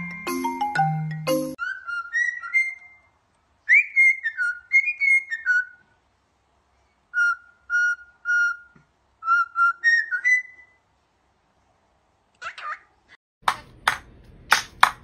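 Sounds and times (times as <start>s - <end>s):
cockatiel whistling a tune: 1.6s - 3.1s, 3.7s - 5.8s, 7.1s - 10.8s.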